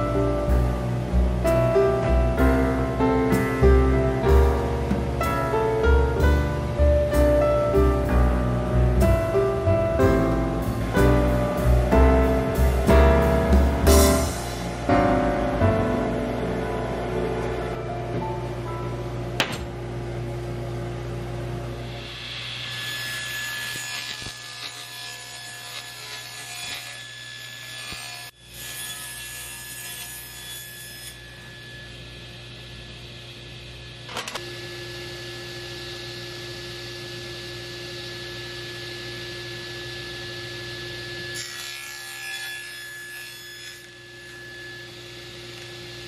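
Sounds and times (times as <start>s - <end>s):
table saw motor whine: 0.0s - 46.0s
saw blade cutting plywood: 22.0s - 31.9s, 41.2s - 46.0s.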